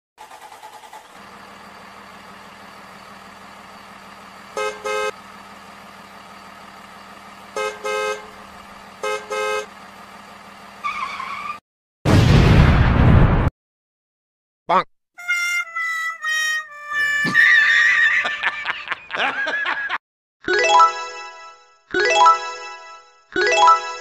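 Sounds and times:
vehicle horn honks: 4.5 - 5.2, 7.5 - 8.4, 9.0 - 9.8
loud explosion blast: 12.1 - 13.5
cartoon engine running: 15.2 - 18.7.

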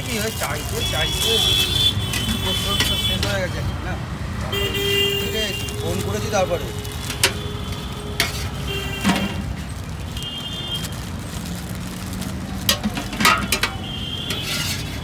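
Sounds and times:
street traffic: 0.0 - 15.0
metal ladle clinking on pots: 2.1 - 3.5, 7.0 - 9.4, 12.6 - 15.0.

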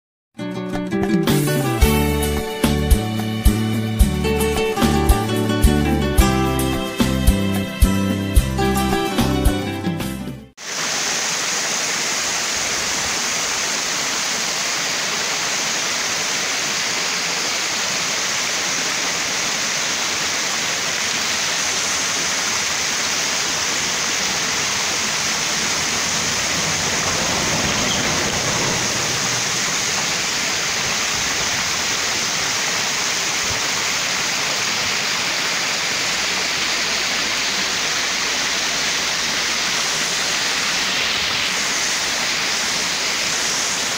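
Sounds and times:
steady rushing noise: 23.6 - 32.6.

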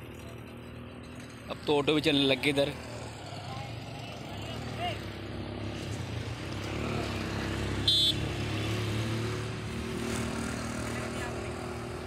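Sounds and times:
short high-pitched horn beep: 7.8 - 8.2.

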